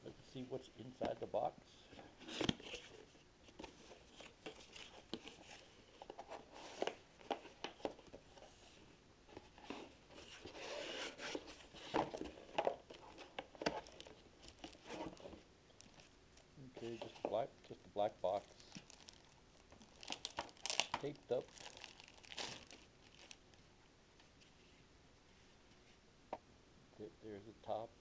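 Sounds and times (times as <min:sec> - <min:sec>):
cardboard box scraping and rustling: 0:09.6 - 0:12.2.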